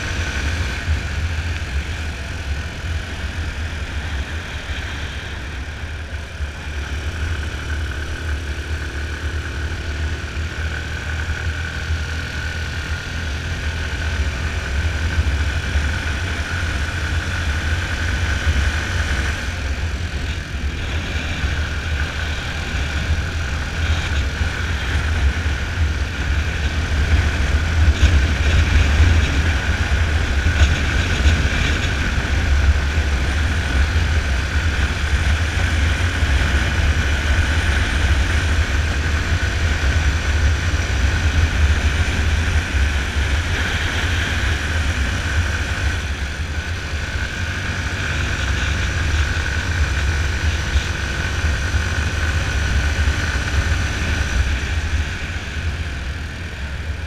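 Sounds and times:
motorcycle engine running: 0.0s - 57.0s
wind rush on microphone: 0.0s - 57.0s.

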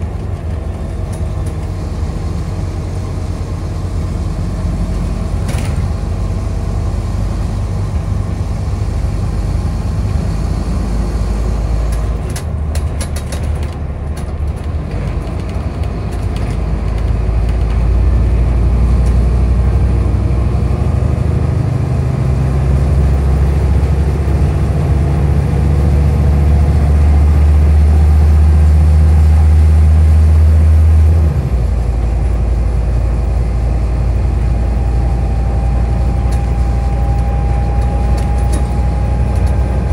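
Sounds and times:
bus engine drone: 0.0s - 39.9s.

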